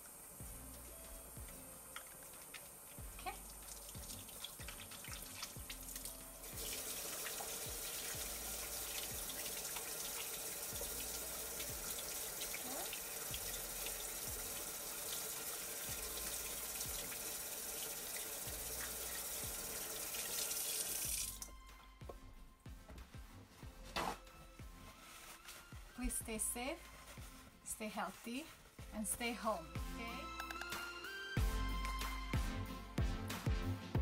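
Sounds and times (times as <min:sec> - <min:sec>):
faucet running into sink: 0:01.9 - 0:21.5.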